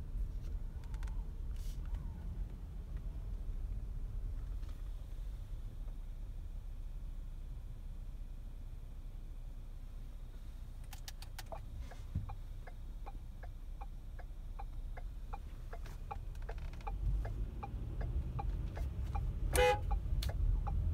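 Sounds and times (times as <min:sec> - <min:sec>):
engine and road rumble: 0:00.0 - 0:20.9
turn signal clicking: 0:10.8 - 0:20.9.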